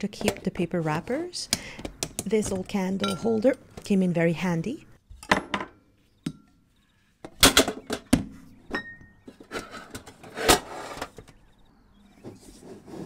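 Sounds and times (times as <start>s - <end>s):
metal clink: 3.0s - 3.5s.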